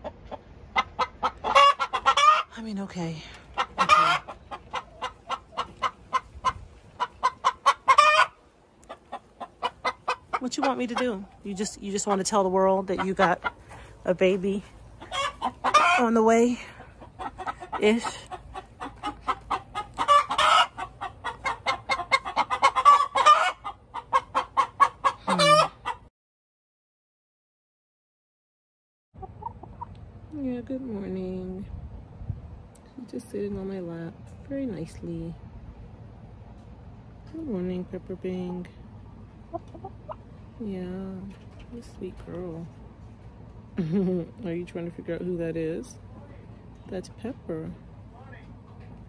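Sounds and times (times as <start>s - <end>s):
hen clucking: 0.0s - 26.1s, 29.2s - 30.0s, 37.4s - 42.7s
hen squawking: 3.6s - 13.6s, 15.0s - 26.0s.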